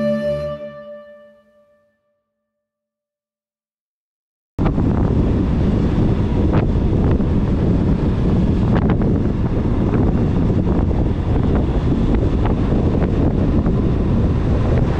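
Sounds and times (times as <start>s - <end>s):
wind rushing over microphone: 4.6s - 14.9s.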